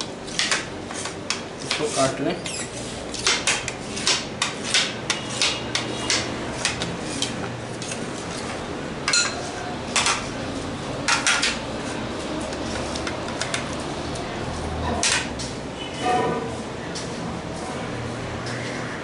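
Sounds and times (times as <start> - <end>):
knife tapping against tray: 3.2 - 7.4.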